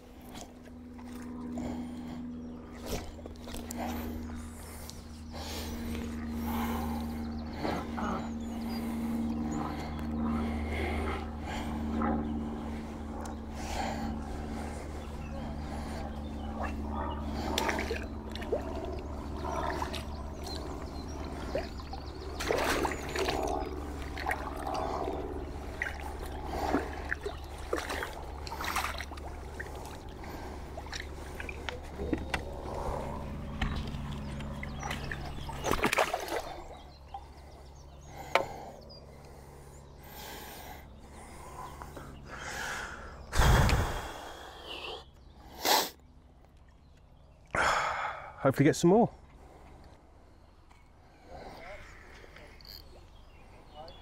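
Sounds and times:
steady low hum: 0.0 - 54.0
small water splashes: 16.6 - 33.0, 33.6 - 37.3.

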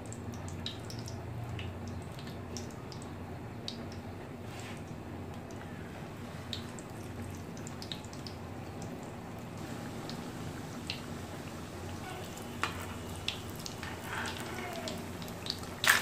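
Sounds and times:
oil sizzling in a pan: 9.6 - 16.0
small crackles and pops: 11.9 - 16.0.

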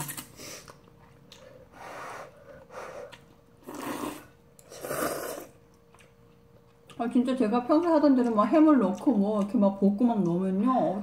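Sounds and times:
noodles being slurped: 3.6 - 5.6.

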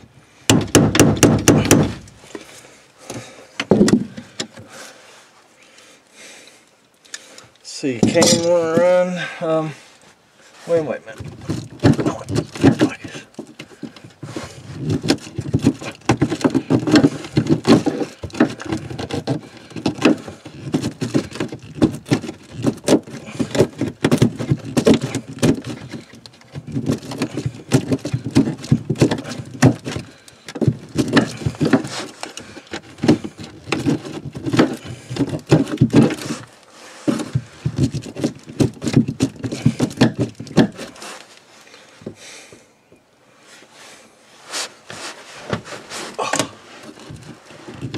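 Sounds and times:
hand tool scraping wood: 0.0 - 5.1, 7.1 - 42.7, 43.4 - 47.9.

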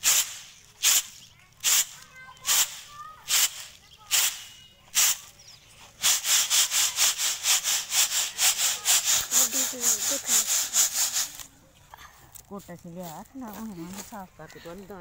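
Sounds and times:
grain rattling in winnowing basket: 0.0 - 11.5.

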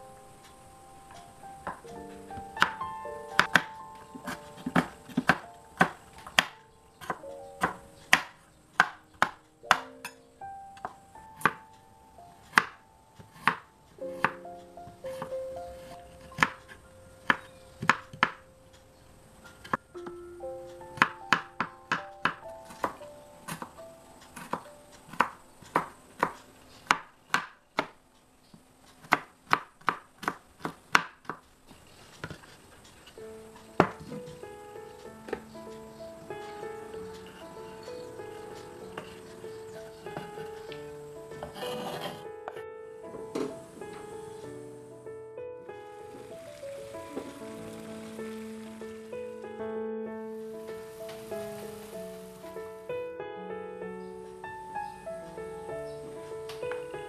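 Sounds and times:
soft background music: 0.0 - 27.9, 32.4 - 57.0
knife chopping on wooden board: 3.4 - 9.9, 12.5 - 13.6, 15.1 - 16.6, 29.0 - 31.4.

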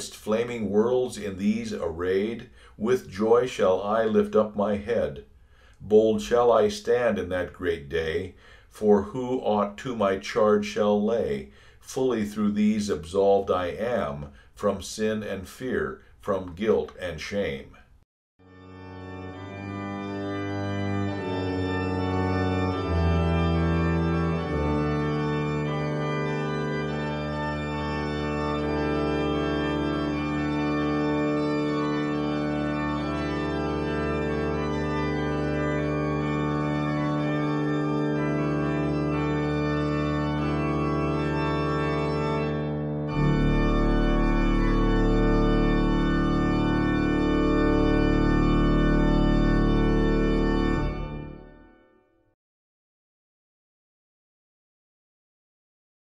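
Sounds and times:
organ playing held chords: 0.0 - 5.2, 18.4 - 52.1.

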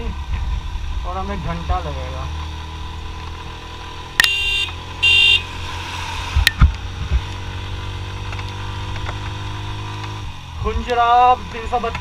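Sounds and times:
motorcycle engine running: 0.0 - 12.0
motorcycle horn beeps: 4.2 - 5.5.

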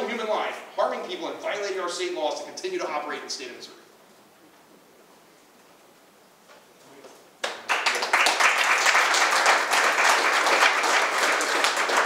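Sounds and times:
audience applauding: 7.4 - 12.0.

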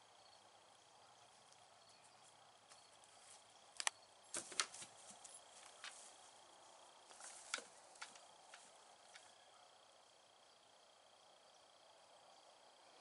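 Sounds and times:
high insect trill: 0.0 - 13.0
rustles: 1.2 - 9.4.

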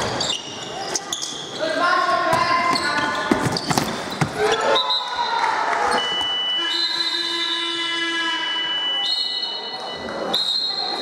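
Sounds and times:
referee whistle blasts: 5.9 - 11.0.

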